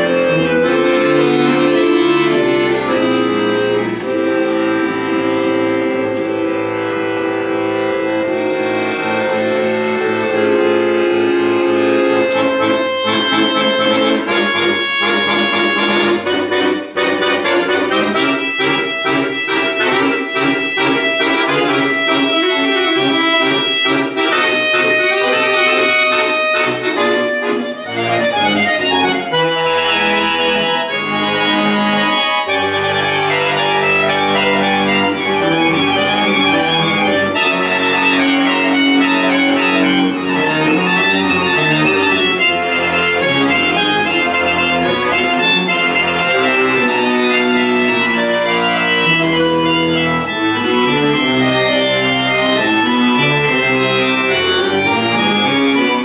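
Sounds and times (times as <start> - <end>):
button accordion playing: 0.0 - 56.0.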